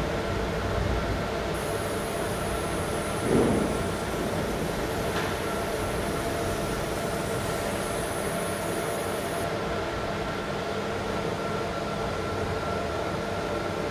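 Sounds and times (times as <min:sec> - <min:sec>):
machine hum with fan noise: 0:00.0 - 0:13.9
faint high whine: 0:01.6 - 0:09.5.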